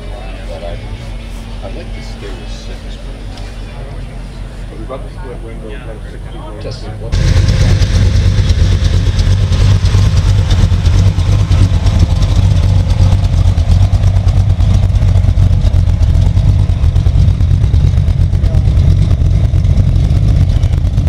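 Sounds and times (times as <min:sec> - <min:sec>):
car engine exhaust rumble: 0:00.0 - 0:21.0.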